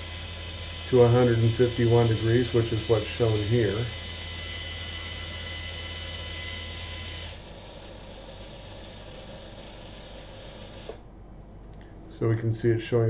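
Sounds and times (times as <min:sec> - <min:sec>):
rotator controller humming: 0:00.0 - 0:12.3.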